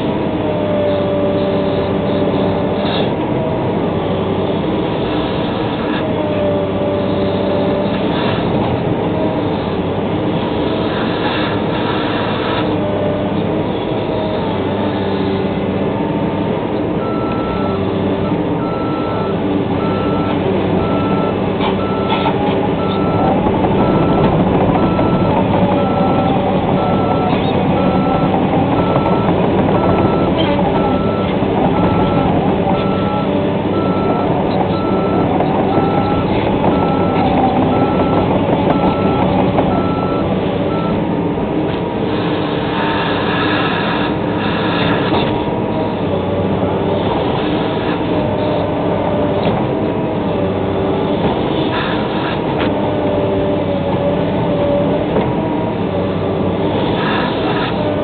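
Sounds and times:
diesel engine running: 0.0s - 58.0s
travel alarm beeping: 18.6s - 41.0s.

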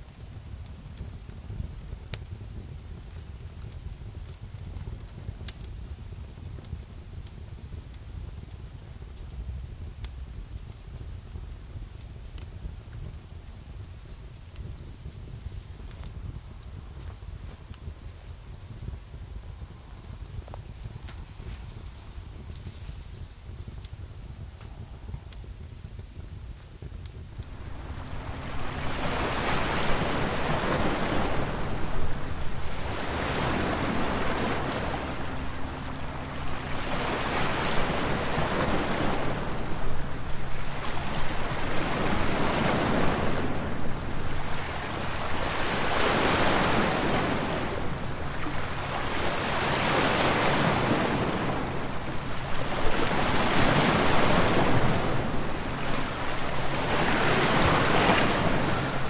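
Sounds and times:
waves washing over pebbles: 27.4s - 59.0s.

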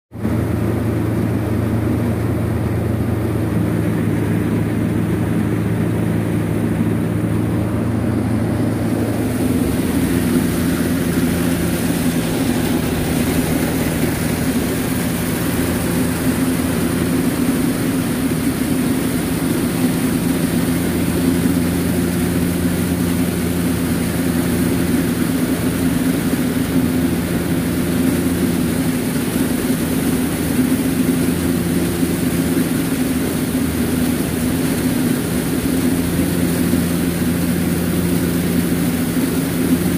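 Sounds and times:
silage blower machinery hum: 0.1s - 39.9s.

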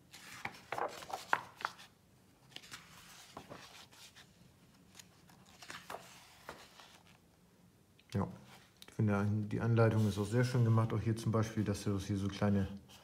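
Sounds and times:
paper pages rustling: 0.0s - 7.2s.

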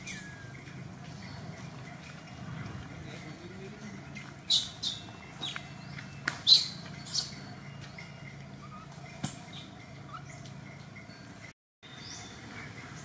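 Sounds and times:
shrill animal squeaks: 6.4s - 7.4s, 8.6s - 10.4s.

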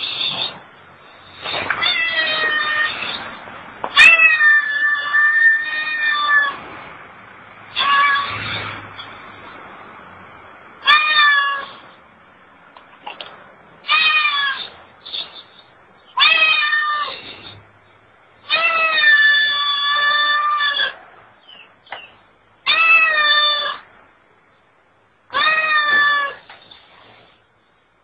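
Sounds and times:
cat meowing: 1.8s - 3.2s, 4.0s - 6.6s, 7.7s - 8.6s, 10.8s - 11.7s, 13.9s - 14.7s, 16.2s - 17.2s, 18.5s - 21.0s, 22.7s - 23.8s, 25.3s - 26.4s.

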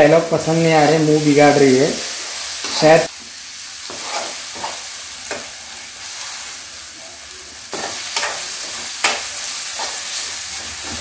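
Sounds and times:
food sizzling in a pan: 0.0s - 11.0s
metal spoon scraping a pan: 3.9s - 5.6s, 7.7s - 11.0s.

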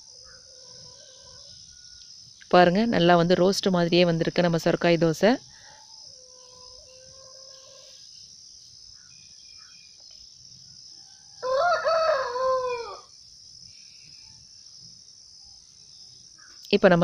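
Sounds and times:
crickets chirring: 0.0s - 17.0s
rooster crowing: 0.2s - 2.0s, 11.0s - 13.2s.

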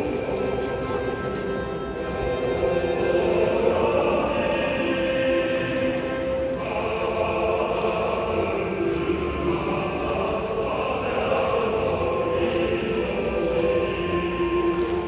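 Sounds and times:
choir singing over loudspeakers: 0.0s - 15.0s.

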